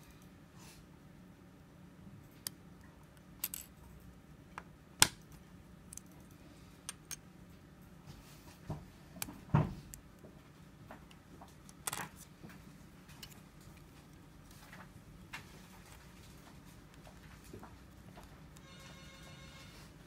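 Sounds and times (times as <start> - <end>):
small plastic parts clicking: 2.4 - 3.7.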